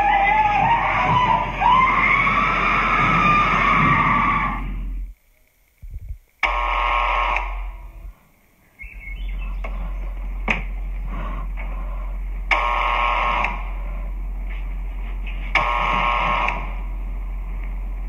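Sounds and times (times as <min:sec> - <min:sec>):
low steady hum: 0:00.0 - 0:18.0
electronic alarm tone: 0:06.5 - 0:07.7.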